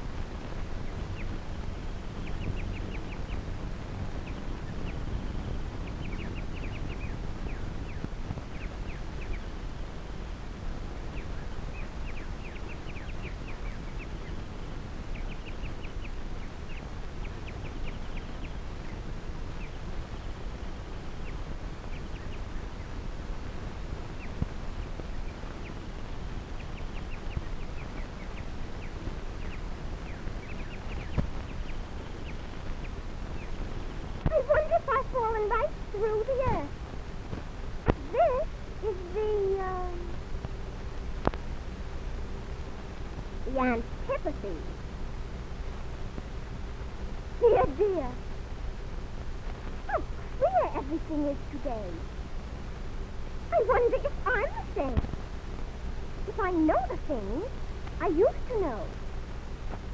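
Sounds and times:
film soundtrack hiss and rumble: 0.0 - 59.9.

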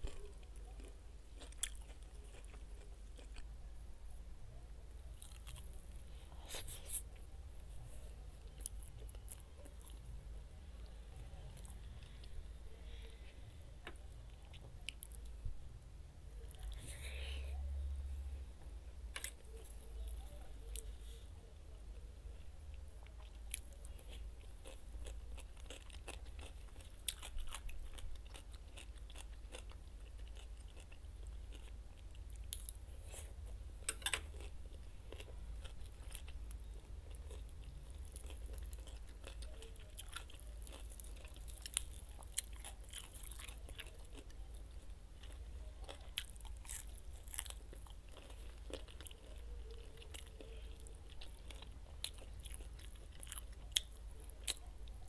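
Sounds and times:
person chewing crunchy food: 0.0 - 3.5, 5.1 - 7.2, 23.0 - 55.0.

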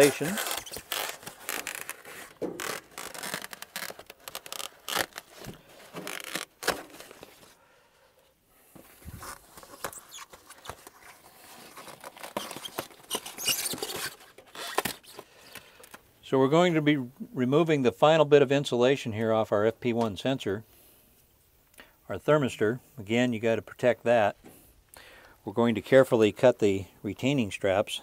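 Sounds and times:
foam insulation peeling and crackling: 0.0 - 7.6, 9.0 - 16.0.

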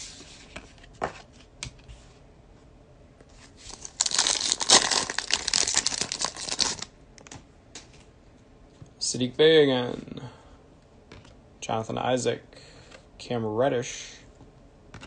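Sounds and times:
foil wrapper crinkling and tearing: 3.7 - 6.9.

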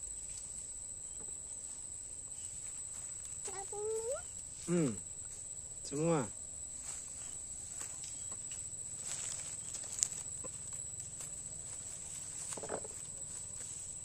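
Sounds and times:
high insect drone: 0.0 - 14.0
dry leaves rustling: 6.7 - 14.0.

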